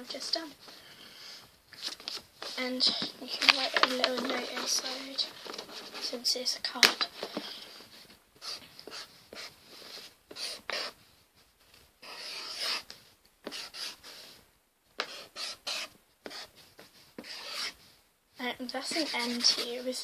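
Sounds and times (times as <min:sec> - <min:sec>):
pen scratching on paper: 0:08.4 - 0:11.0, 0:12.0 - 0:14.4, 0:15.0 - 0:18.0, 0:18.8 - 0:20.0.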